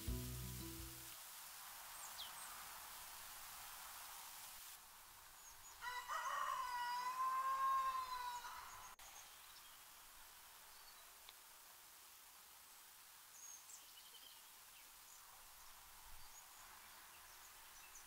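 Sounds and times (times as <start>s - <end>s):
rooster crowing: 5.8s - 9.0s.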